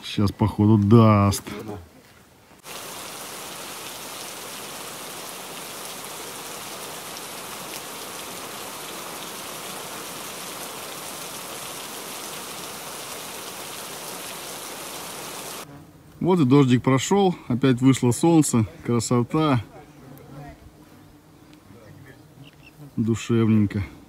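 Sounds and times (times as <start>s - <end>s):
rain shower hissing: 2.6s - 15.7s.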